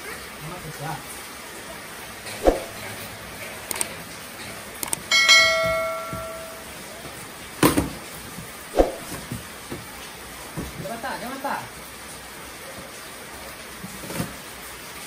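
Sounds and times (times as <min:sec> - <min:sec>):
bell ding: 0:05.1 - 0:06.8.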